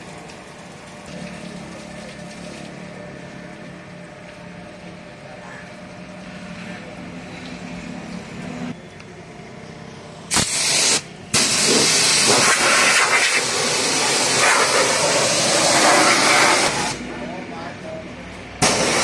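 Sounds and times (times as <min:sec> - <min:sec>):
pressure washer spraying: 0:10.3 - 0:17.0, 0:18.6 - 0:19.0.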